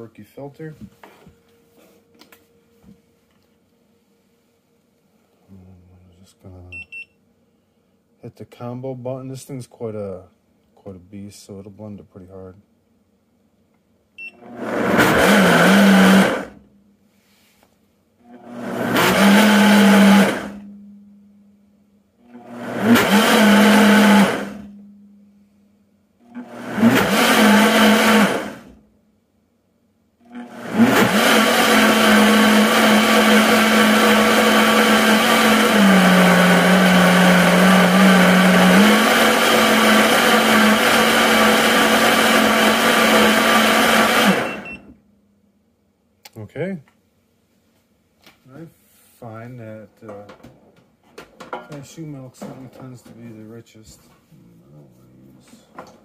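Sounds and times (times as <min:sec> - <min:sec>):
blender motor running: 0:14.4 - 0:16.6, 0:18.2 - 0:20.7, 0:22.2 - 0:24.7, 0:26.3 - 0:28.7, 0:30.2 - 0:44.9.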